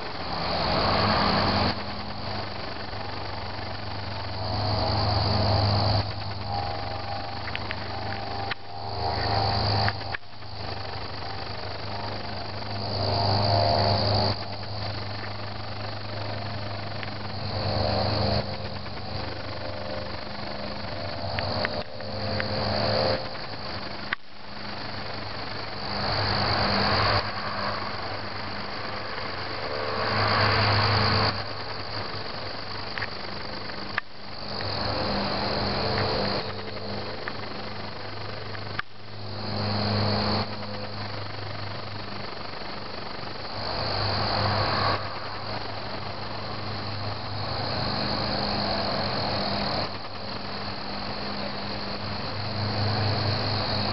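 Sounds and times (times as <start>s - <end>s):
crickets chirping: 0.0s - 53.9s
low steady hum: 0.0s - 53.9s
wash of noise: 24.7s - 32.8s, 42.2s - 49.0s.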